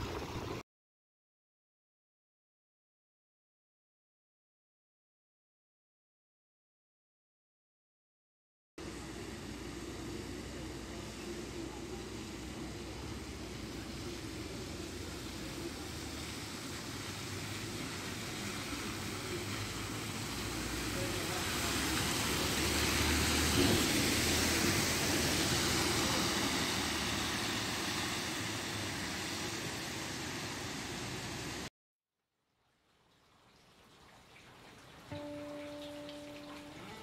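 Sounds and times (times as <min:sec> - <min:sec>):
tyres hissing on wet road: 0:08.8 - 0:31.7, 0:34.2 - 0:37.0
bus engine hum: 0:08.9 - 0:31.7.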